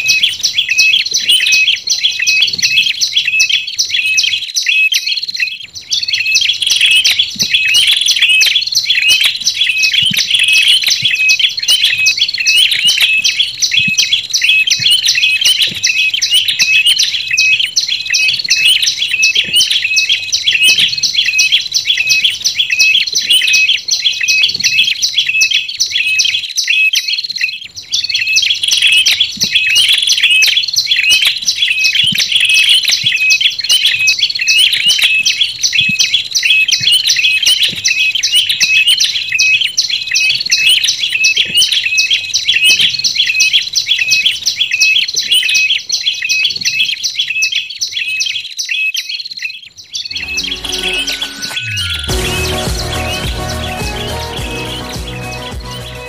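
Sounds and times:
rapid high bird chirps: 0.0s - 56.0s.

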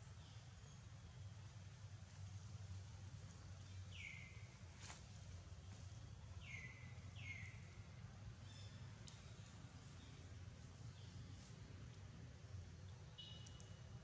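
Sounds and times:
low steady hum: 0.0s - 14.0s
soft clicks: 9.0s - 9.3s, 12.9s - 13.8s.

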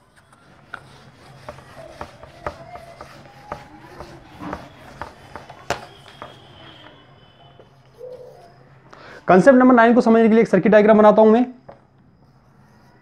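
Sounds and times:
duster scrubbing whiteboard: 0.0s - 6.8s
duster knocking against board: 1.4s - 6.4s.

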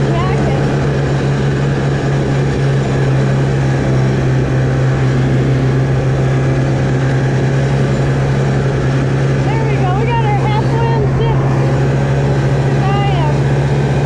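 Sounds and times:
snowmobile engine running: 0.0s - 14.0s.

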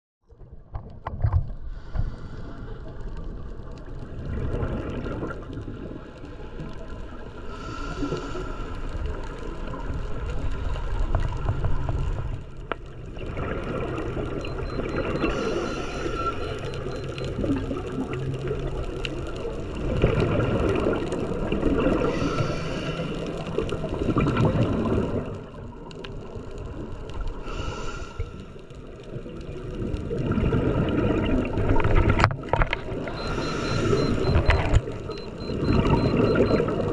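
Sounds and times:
regulator bubbles gurgling: 1.8s - 27.5s, 28.2s - 36.9s
low underwater rumble: 8.5s - 27.4s.

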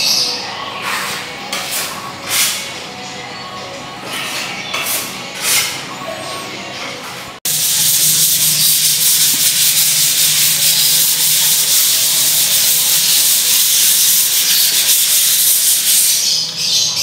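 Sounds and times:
sandpaper sanding a wall: 7.5s - 16.4s.

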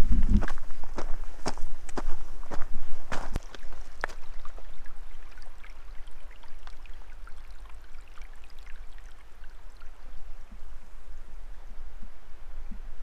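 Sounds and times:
stream babbling: 3.1s - 11.4s
small water splashes: 3.2s - 10.4s.

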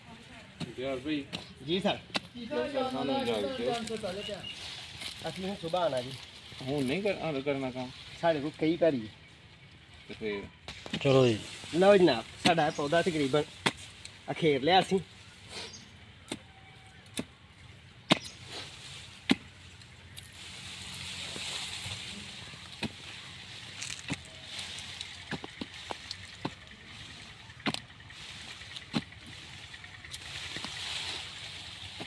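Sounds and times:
digging blade chopping soil: 0.6s - 2.5s, 12.4s - 12.8s, 13.4s - 14.0s, 16.2s - 17.4s, 18.0s - 20.3s, 22.6s - 24.5s, 25.1s - 26.6s, 27.5s - 32.0s
soil crumbling: 18.0s - 32.0s.

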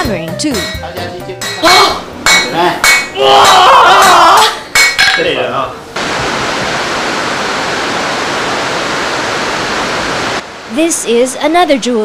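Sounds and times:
steady rushing noise: 5.8s - 11.8s.

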